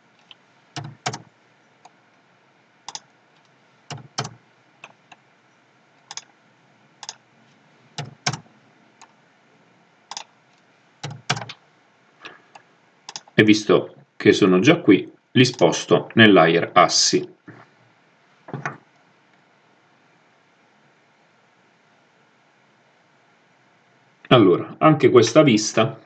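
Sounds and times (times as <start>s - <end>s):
keyboard clicks: 0.2s - 2.0s, 3.9s - 5.2s, 6.1s - 6.3s, 7.0s - 7.2s, 8.0s - 8.4s, 11.0s - 11.6s, 13.1s - 13.4s
computer mouse clicks: 2.9s - 5.2s, 6.1s - 6.3s, 7.0s - 7.2s, 8.0s - 8.4s, 10.1s - 10.3s, 12.5s - 13.4s.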